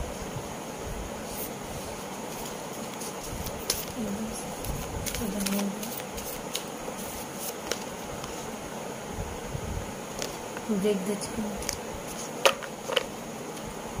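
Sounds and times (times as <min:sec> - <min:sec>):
cards being shuffled: 0:01.3 - 0:08.4, 0:10.2 - 0:10.6, 0:11.6 - 0:13.7.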